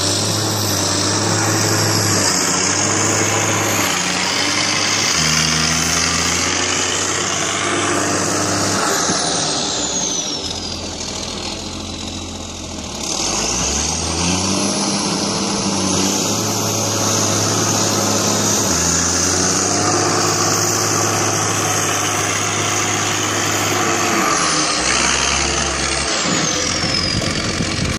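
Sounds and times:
high whine: 0.0s - 12.2s
diesel engine revving: 0.0s - 27.9s.

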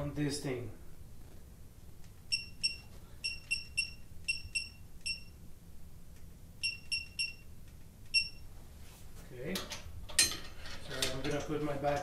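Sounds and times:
short high electronic beeps: 2.3s - 5.4s, 6.6s - 7.5s.

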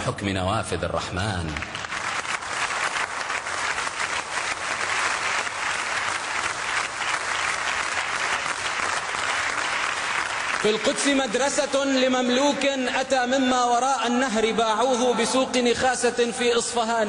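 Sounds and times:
audience applauding: 1.4s - 12.8s.

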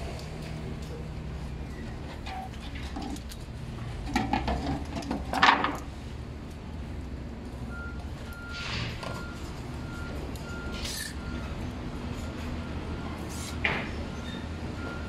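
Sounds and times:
reversing alarm beeps: 7.7s - 15.0s.

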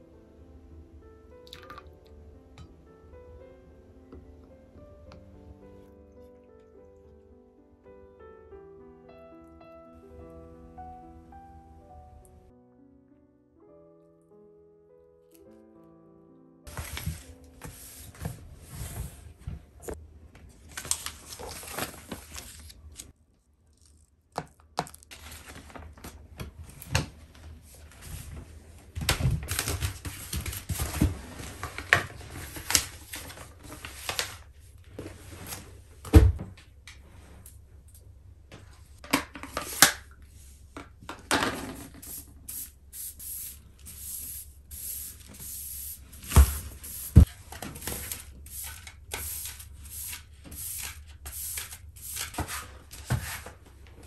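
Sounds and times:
rubbing and scraping on floor: 29.8s - 35.9s, 52.2s - 54.0s.

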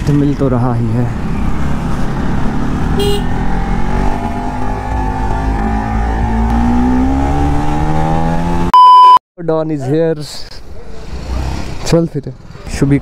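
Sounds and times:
motorcycle engine accelerating: 1.2s - 8.7s
short high beep: 8.7s - 9.2s.

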